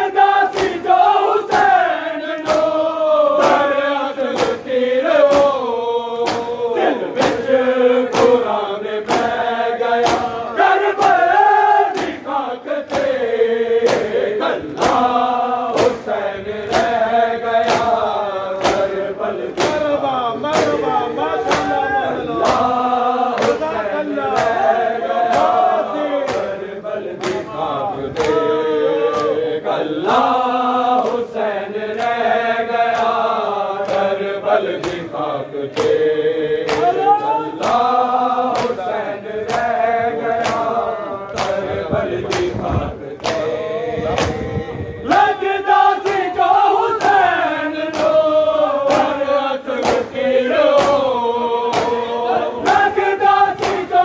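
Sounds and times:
men chanting in unison: 0.0 - 54.0.

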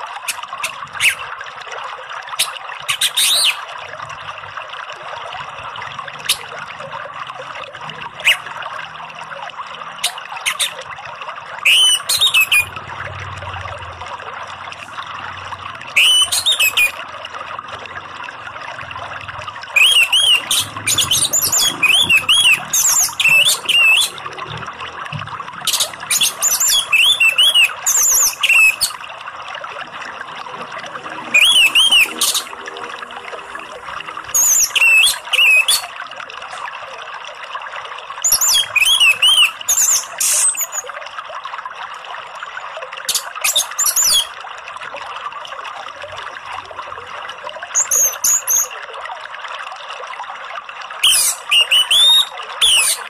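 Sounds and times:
running water: 0.0 - 53.0
thrush singing whistled phrases: 11.6 - 12.8, 16.0 - 17.0, 19.8 - 24.2, 25.6 - 29.0, 31.2 - 32.7, 34.3 - 35.9, 38.2 - 40.9, 43.1 - 44.3, 47.8 - 48.7, 51.0 - 53.0.

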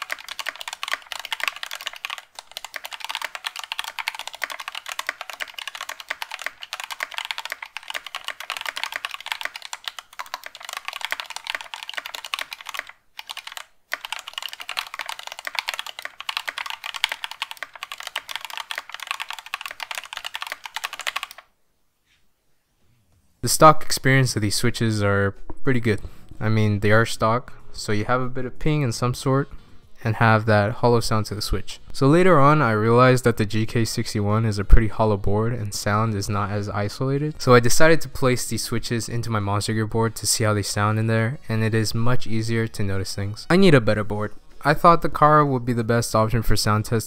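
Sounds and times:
fast typing on keyboard: 0.0 - 21.5.

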